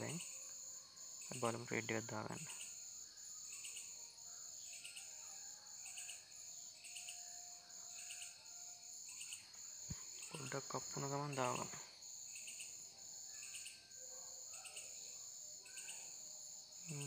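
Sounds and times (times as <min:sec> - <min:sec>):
insect chirping trill: 0:00.0 - 0:17.0.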